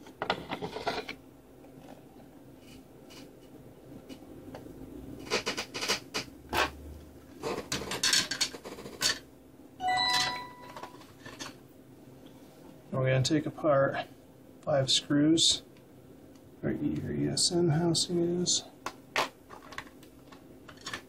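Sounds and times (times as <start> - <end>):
rubbing and scraping handling noise: 0.0 - 4.2, 19.1 - 21.0.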